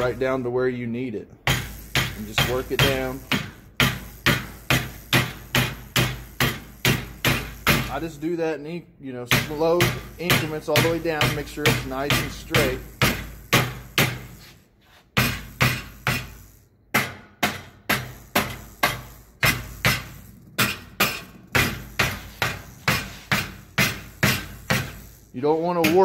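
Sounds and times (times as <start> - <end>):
mallet striking sheet metal: 9.3 - 14.3, 15.2 - 26.0.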